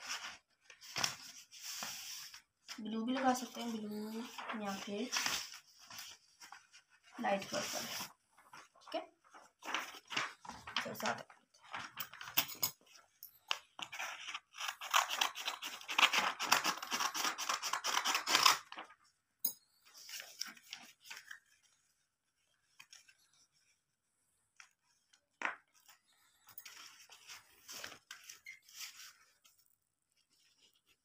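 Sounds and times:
paper rustling: 0.0 - 19.2, 19.9 - 31.0
scissors cutting paper: 14.0 - 18.8.

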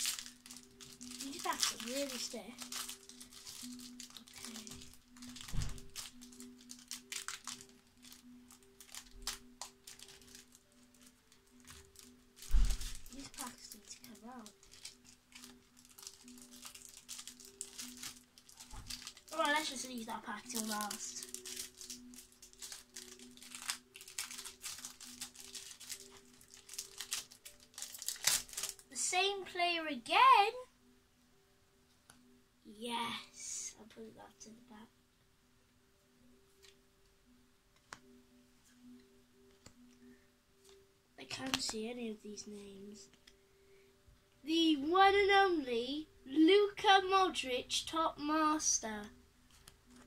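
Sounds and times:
foil wrapper crinkling and tearing: 0.0 - 28.9.

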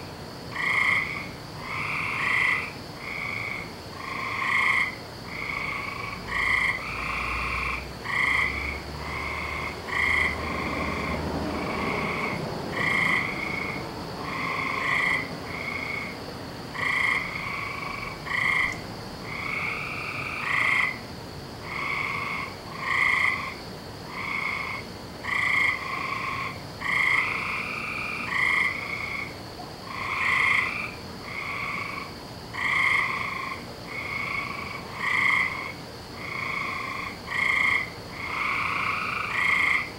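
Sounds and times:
frogs croaking: 0.0 - 39.9.

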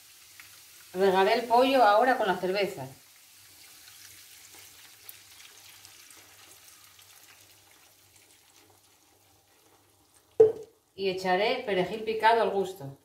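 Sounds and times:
liquid sizzling in hot fat: 0.0 - 11.0
beer pouring into pot: 3.1 - 10.8.

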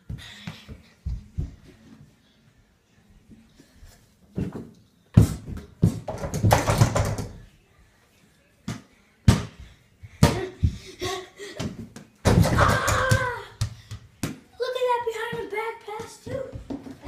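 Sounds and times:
ball bouncing on tile floor: 4.4 - 7.4, 8.7 - 10.8, 11.6 - 14.4, 15.3 - 17.0.

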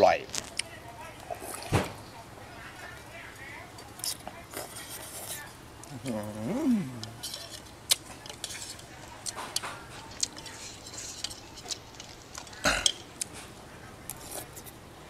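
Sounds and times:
person eating: 4.1 - 14.8
utensils clicking against a bowl: 7.0 - 13.1.

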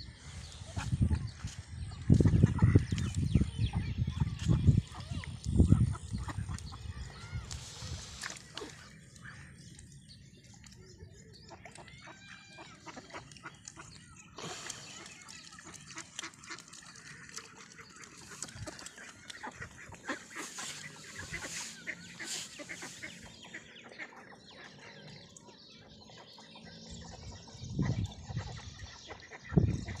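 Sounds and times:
ducks calling softly: 0.2 - 30.0
bills and feet scuffling in mud: 4.2 - 24.0.

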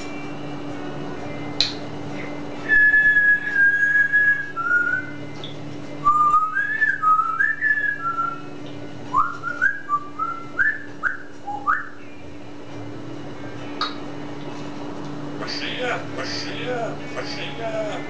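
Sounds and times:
low hum: 0.0 - 18.0
parrot whistling: 2.6 - 5.2, 6.0 - 8.5, 9.1 - 12.0.

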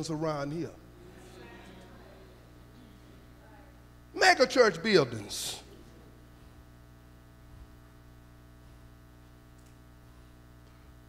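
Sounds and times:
background hiss: 0.0 - 11.0
faint electrical mains hum: 0.0 - 11.0.

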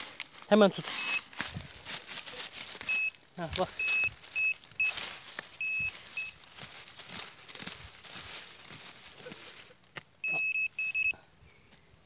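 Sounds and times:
rustling and scraping: 0.0 - 10.1
metal detector beeping: 0.9 - 1.3, 2.8 - 6.4, 10.2 - 11.2.

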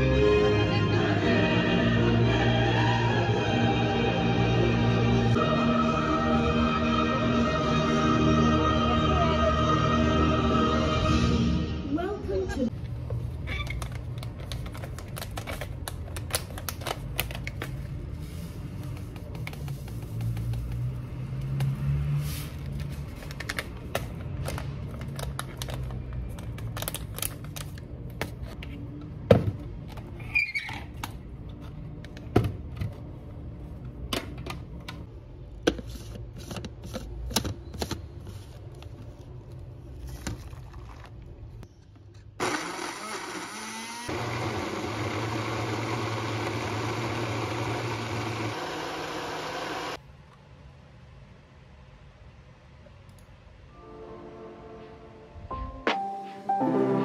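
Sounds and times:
blender motor running: 42.4 - 50.0.

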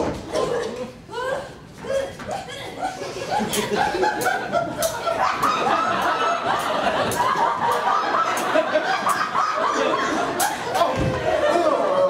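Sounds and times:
audience laughing: 2.6 - 12.0.

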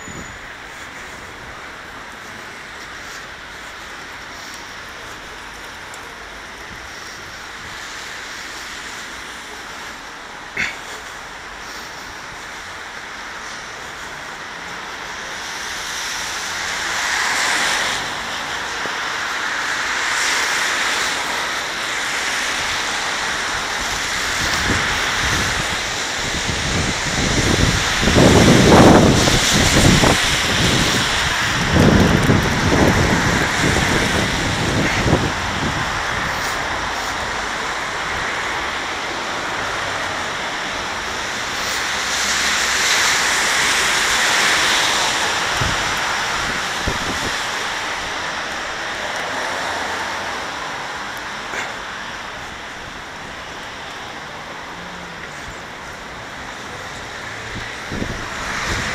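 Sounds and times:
traffic on a wet road: 0.0 - 58.9
wind buffeting microphone: 22.5 - 49.2, 55.3 - 58.9.

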